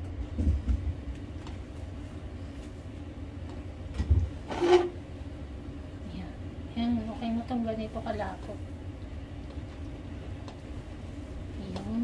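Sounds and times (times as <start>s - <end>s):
steady low hum: 0.0s - 12.0s
utensil scraping pot: 4.4s - 5.0s.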